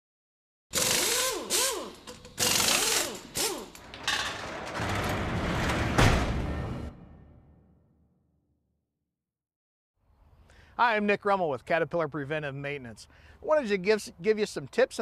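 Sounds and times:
power tool motor whine: 0:00.8 - 0:03.8
mechanical rumble: 0:03.8 - 0:07.7
heavy hit: 0:04.8 - 0:08.0.

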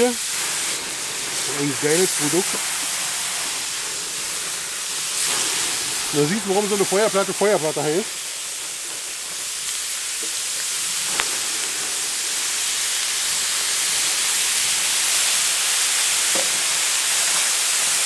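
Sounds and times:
seafood sizzling on hot plate: 0:00.0 - 0:18.0.

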